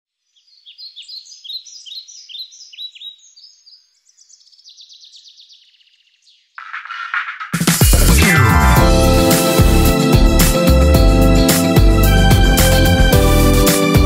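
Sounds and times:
small songbird singing: 0:00.1 - 0:06.6
music: 0:06.6 - 0:14.0.

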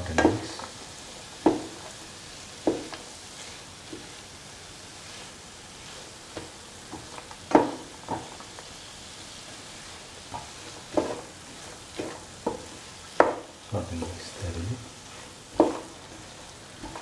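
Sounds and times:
spatula scraping and knocking pan: 0:00.0 - 0:00.8, 0:01.4 - 0:02.0, 0:02.6 - 0:08.6, 0:10.2 - 0:13.6, 0:15.0 - 0:17.0
food sizzling in a pan: 0:00.0 - 0:17.0.

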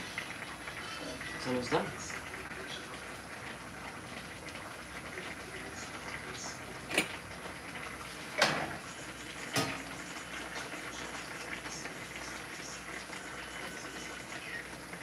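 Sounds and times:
food sizzling in pan: 0:00.0 - 0:15.0
pan lid clanking: 0:09.5 - 0:10.0.

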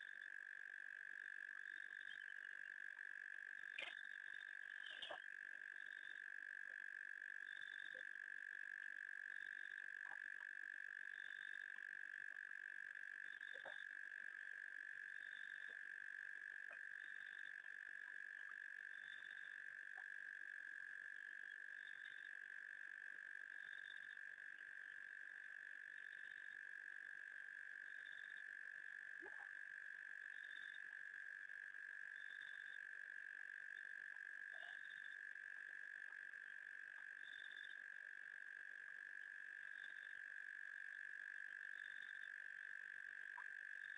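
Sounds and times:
frogs and insects trilling: 0:00.0 - 0:43.9.

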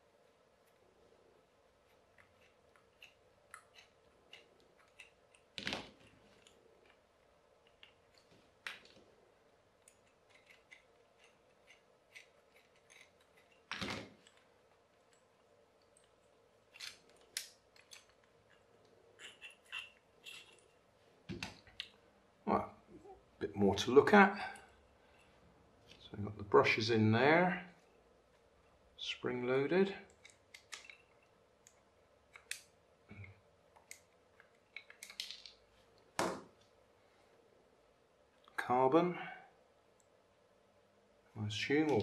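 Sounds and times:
screwdriver clicks and scrapes: 0:01.9 - 0:07.0, 0:09.8 - 0:14.4, 0:16.7 - 0:20.8.

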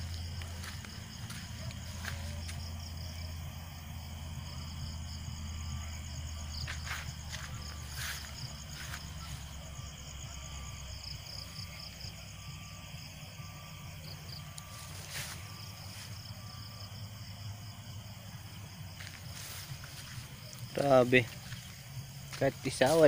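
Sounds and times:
rustling leaves or footsteps: 0:00.0 - 0:02.9, 0:06.6 - 0:10.0, 0:14.6 - 0:16.4, 0:18.4 - 0:23.0
crickets chirping: 0:00.0 - 0:23.0.

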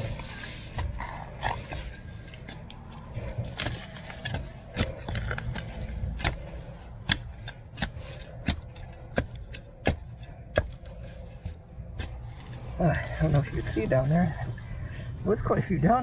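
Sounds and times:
spade chopping into soil: 0:03.5 - 0:10.9.

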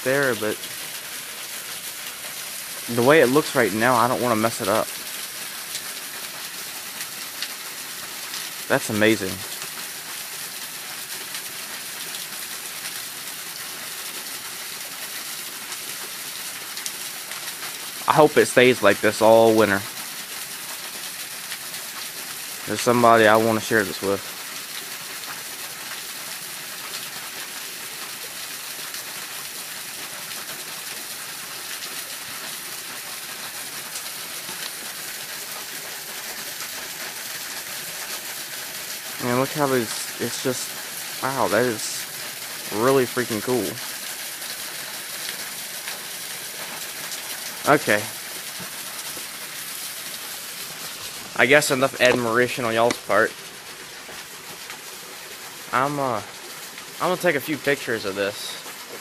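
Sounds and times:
waterfall hissing: 0:00.0 - 0:59.0.

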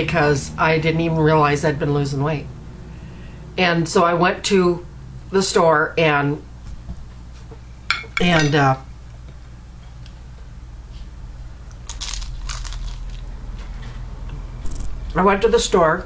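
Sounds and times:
utensil clinking against dish: 0:07.9 - 0:08.6.

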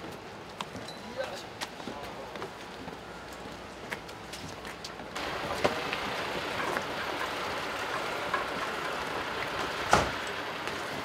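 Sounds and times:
coach engine running: 0:05.2 - 0:11.0.

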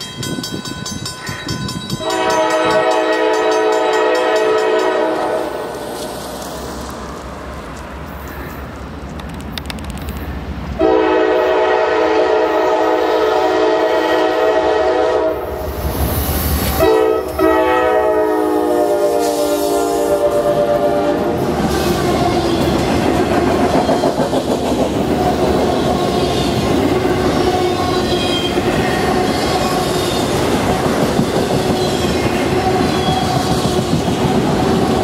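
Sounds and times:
train wheels on rails: 0:00.0 - 0:35.0
locomotive air horn blasts: 0:02.0 - 0:05.7, 0:10.8 - 0:15.5, 0:16.7 - 0:21.4.

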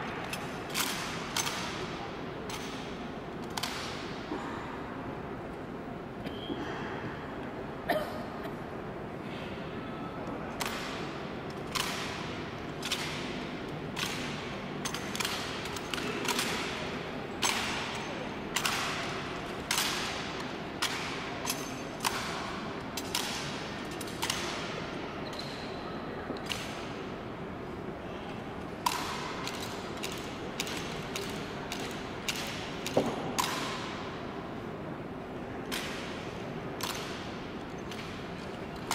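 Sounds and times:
rifles slapping and knocking: 0:00.2 - 0:01.9, 0:10.6 - 0:24.9, 0:28.8 - 0:34.2, 0:35.6 - 0:38.9.

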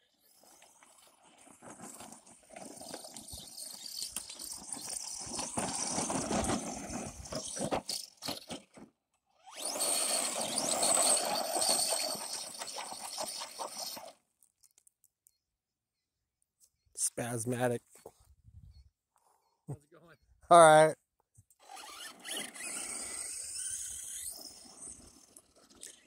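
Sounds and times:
electric motor running hard: 0:09.5 - 0:14.0, 0:21.6 - 0:25.3.

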